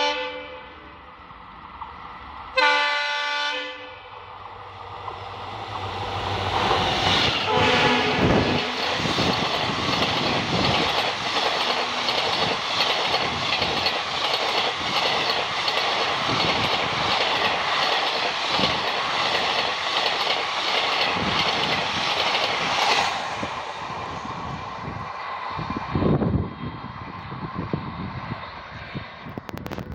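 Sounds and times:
train horn blast: 0.0s - 0.8s, 2.6s - 4.2s, 7.4s - 8.8s
train passing at speed: 0.0s - 29.9s
wheels clattering over rail joints: 8.3s - 22.9s.

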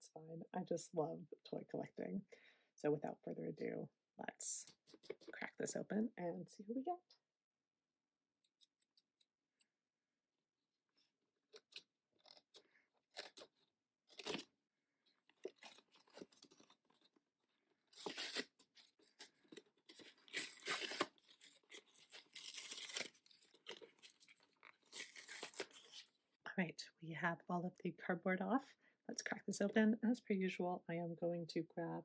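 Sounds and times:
cardboard tearing and crinkling: 17.9s - 26.1s.

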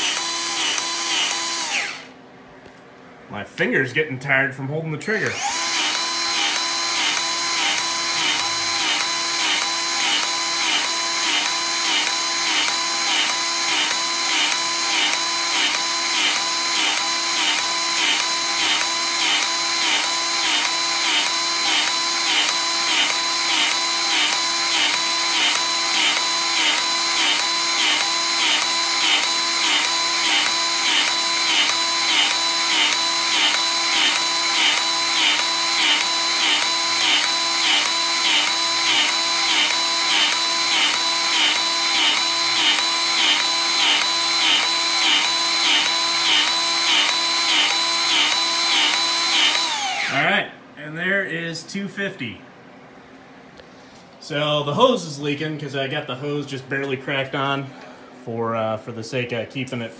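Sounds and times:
grease gun motor pulsing: 0.0s - 2.1s, 5.4s - 50.2s.

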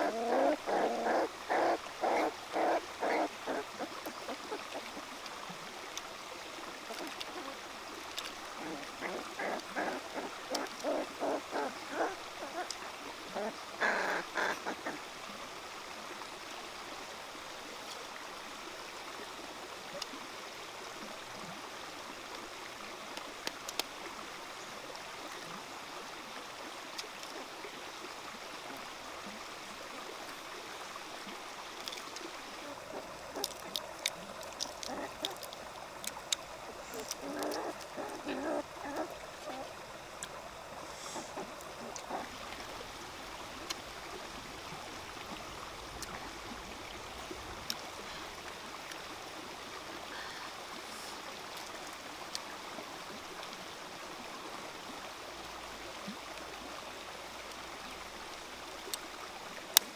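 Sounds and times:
puppies growling and grunting: 0.0s - 5.0s, 8.6s - 15.0s, 32.6s - 35.5s, 36.6s - 39.8s, 41.0s - 42.6s
rocky stream rushing: 0.0s - 59.9s.

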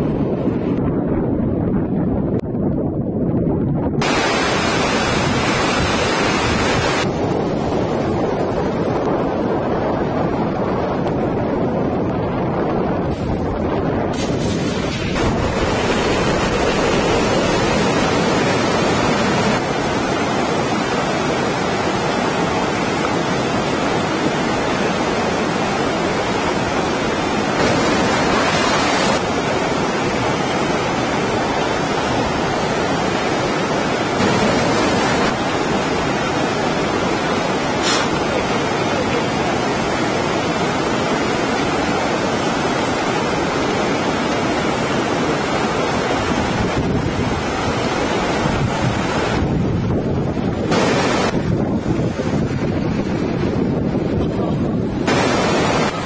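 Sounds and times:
loud rushing noise: 24.8s - 31.0s, 34.1s - 39.1s.

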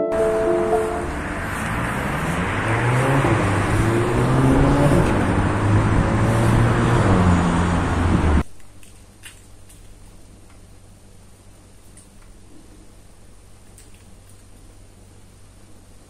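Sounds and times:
cars passing: 0.0s - 8.4s.

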